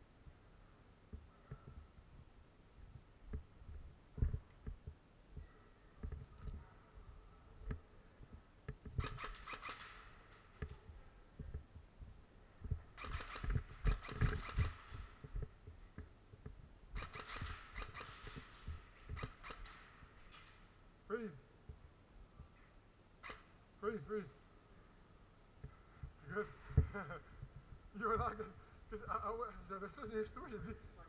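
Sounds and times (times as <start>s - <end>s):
footsteps and gear knocking: 1.1s - 6.7s, 7.6s - 20.7s
rapid airsoft gunfire: 9.0s - 10.4s, 12.9s - 15.3s, 17.0s - 19.9s.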